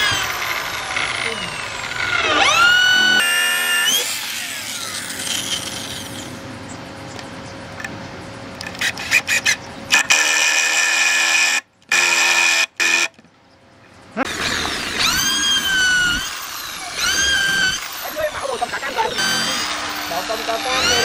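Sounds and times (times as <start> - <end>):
cordless drill driving screw: 0.0 - 6.3, 14.3 - 21.0.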